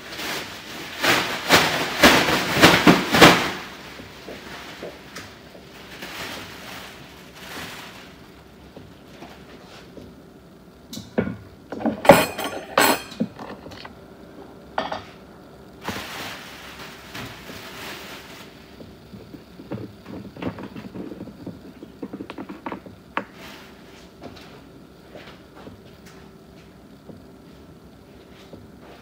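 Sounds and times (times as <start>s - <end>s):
dishes and utensils clattering: 11.7s - 13.9s.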